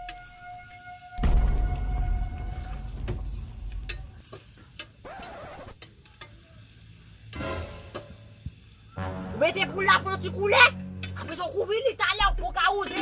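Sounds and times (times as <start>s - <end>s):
light sizzling: 0.0s - 12.1s
low rumble: 1.2s - 4.2s.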